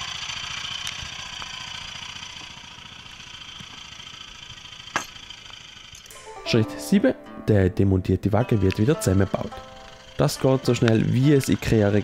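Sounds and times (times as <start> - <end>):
small engine idling: 0.0 - 6.1, 8.3 - 12.0.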